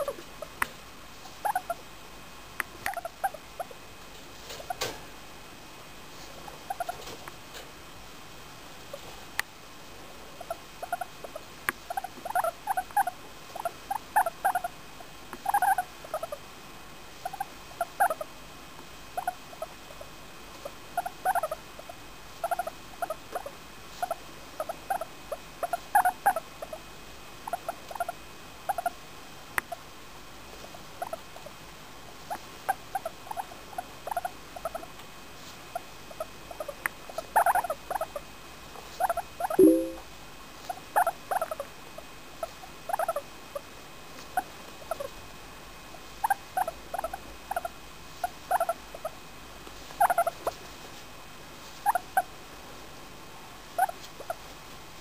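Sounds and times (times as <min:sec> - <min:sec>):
guinea pig squeaking: 0:01.4 - 0:01.8, 0:02.8 - 0:03.7, 0:06.5 - 0:07.2, 0:10.4 - 0:14.7, 0:15.4 - 0:16.4, 0:17.2 - 0:18.3, 0:19.1 - 0:26.8, 0:27.4 - 0:29.0, 0:30.7 - 0:31.5, 0:32.2 - 0:34.9, 0:35.7 - 0:38.2, 0:38.8 - 0:40.0, 0:40.6 - 0:41.6, 0:42.4 - 0:43.6, 0:44.3 - 0:45.2, 0:46.1 - 0:49.2, 0:49.9 - 0:50.6, 0:51.8 - 0:52.3, 0:53.7 - 0:54.5.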